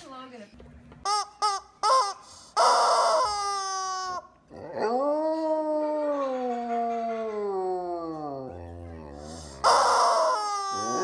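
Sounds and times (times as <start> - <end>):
dog howling: 4.5 - 11.0.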